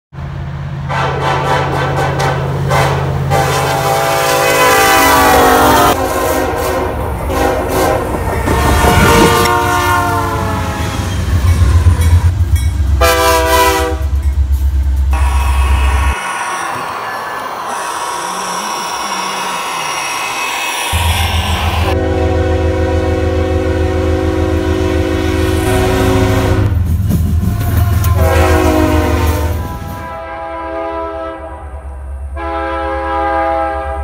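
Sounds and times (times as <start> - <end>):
locomotive air horn blasts: 0.9 - 11.1, 13.0 - 14.2, 20.9 - 26.8, 27.5 - 34.0.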